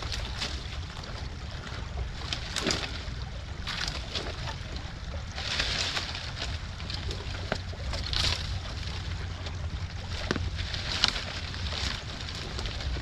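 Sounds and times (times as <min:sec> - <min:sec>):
wind rumble on microphone: 0:00.0 - 0:13.0
dry leaves crunching underfoot: 0:10.0 - 0:13.0.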